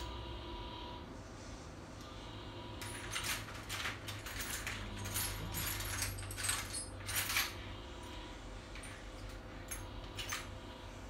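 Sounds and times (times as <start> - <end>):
steady low hum: 0.0 - 11.0
rustling and clinking objects: 2.7 - 10.8.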